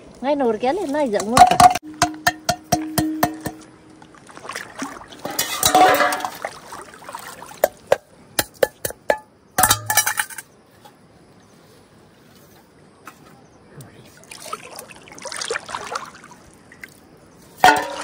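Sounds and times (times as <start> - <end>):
pots and dishes clinking: 1.2 - 3.7, 5.2 - 6.4, 7.6 - 10.5, 17.6 - 18.0
water rushing: 1.9 - 8.0, 14.1 - 16.9.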